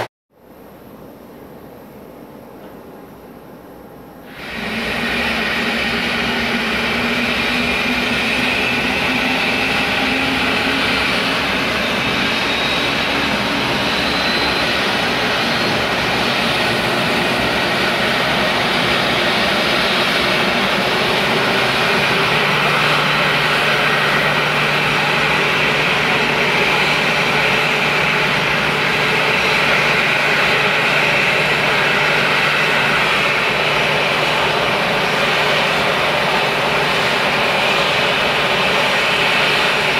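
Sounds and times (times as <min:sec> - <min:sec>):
jet engines rush and whine: 0:03.8 - 0:39.9.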